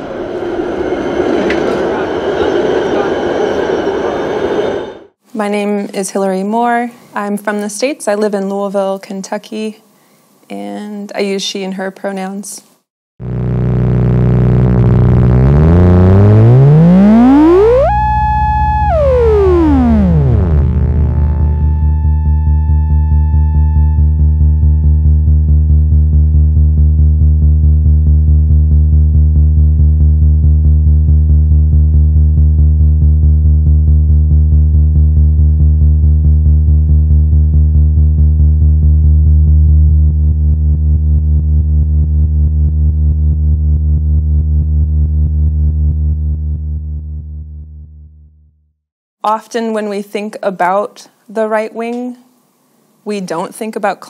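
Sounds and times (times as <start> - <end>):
steady pulsing beat: 13.2 - 41.0
low synthesizer drone: 13.2 - 48.4.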